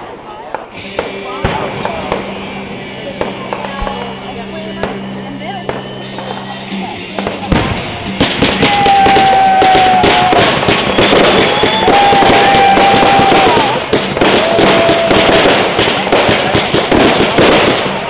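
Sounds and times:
fireworks crackling: 0.0 - 18.0
firework whistles: 5.7 - 6.8, 7.4 - 17.9.

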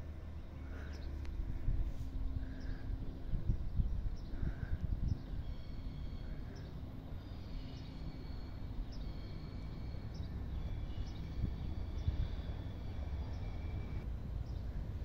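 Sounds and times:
distant approaching train: 0.0 - 15.0
wind rumble: 0.0 - 15.0.

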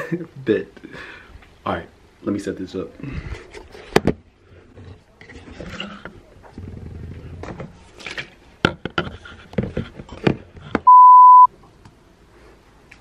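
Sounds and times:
high bleep tone: 10.9 - 11.5.

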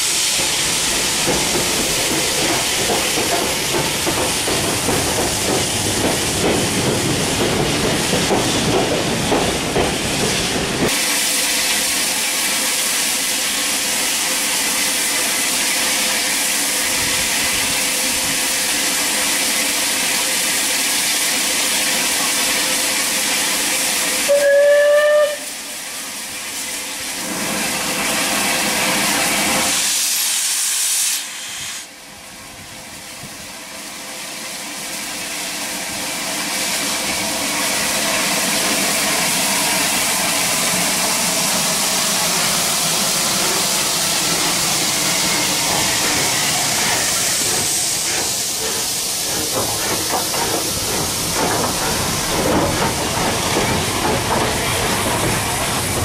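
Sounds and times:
steam locomotive hissing: 0.0 - 56.0
steam whistle blast: 24.2 - 25.9.

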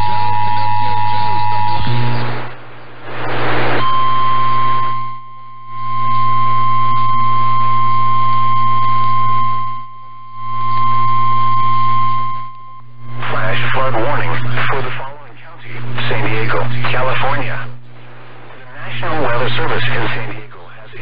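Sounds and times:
high alarm beep: 0.0 - 2.3
receiver hum and hiss: 0.0 - 21.0
burst of radio static: 1.1 - 5.0, 13.0 - 21.0.

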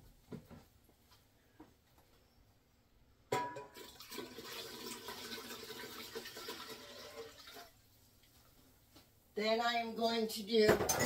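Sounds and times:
water pouring into metal pot: 3.7 - 7.8.

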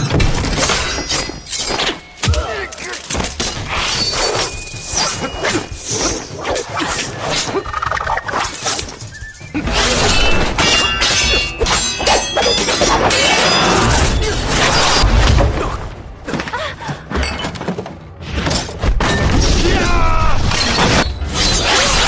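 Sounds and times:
film music score: 0.0 - 22.0
ringing metallic clangs: 9.6 - 14.2.

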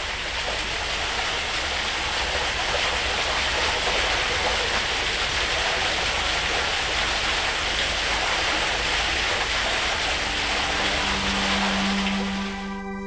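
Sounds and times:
water rushing over rock: 0.0 - 12.8
sustained musical note: 10.0 - 13.0.

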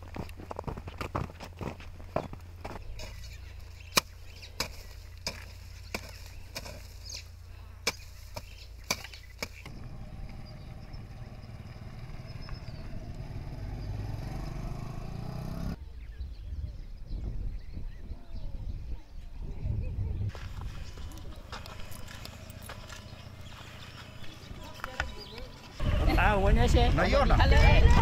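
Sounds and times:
hoe chopping dry soil: 0.0 - 9.8
motorcycle engine running: 0.0 - 15.8, 20.6 - 27.0.

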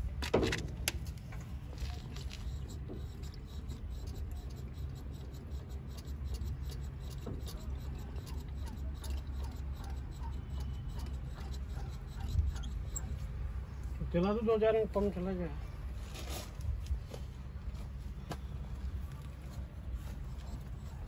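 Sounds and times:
steady low hum: 0.0 - 21.0
light scraping and ticks: 0.2 - 13.9, 18.9 - 21.0.

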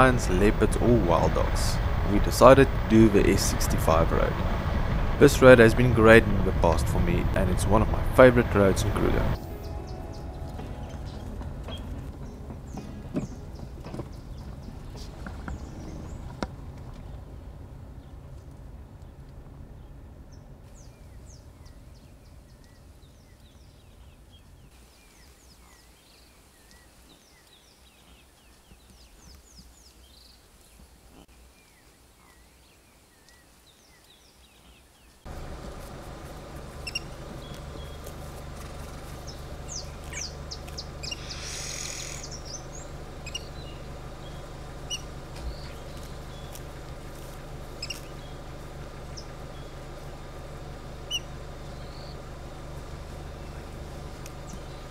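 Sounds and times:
low steady hum: 0.0 - 25.8, 35.3 - 54.9
wild birds chirping: 0.0 - 54.9
short harsh burst: 41.2 - 42.3.

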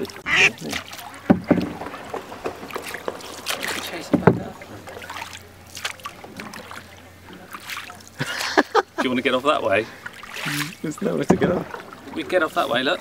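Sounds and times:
water splashing from oar strokes: 0.0 - 8.7, 9.7 - 13.0
oar knocking on rowboat: 0.3 - 6.8, 11.2 - 11.9.

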